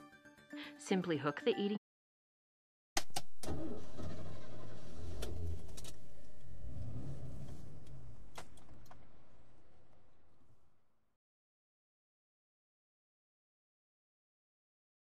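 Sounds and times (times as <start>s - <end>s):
sharp clicks: 3.0s - 3.6s
vehicle low rumble: 3.4s - 10.8s.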